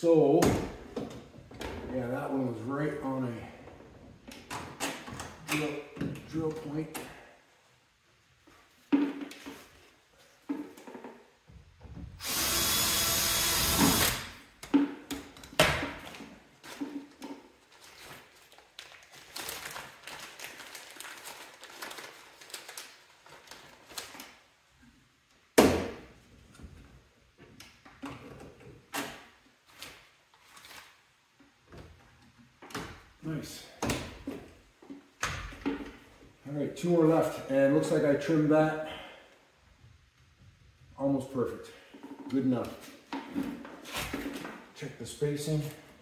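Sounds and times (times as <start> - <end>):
power drill running: 12.2 - 14.3.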